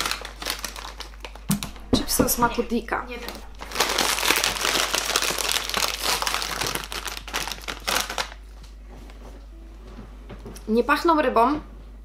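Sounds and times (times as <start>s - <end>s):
crisp packet crinkling: 0.0s - 8.8s.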